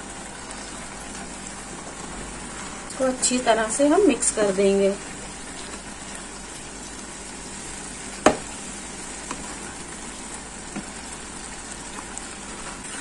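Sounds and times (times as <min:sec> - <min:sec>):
carrots sizzling in a pan: 0:00.0 - 0:13.0
sharp knock: 0:08.2 - 0:08.5.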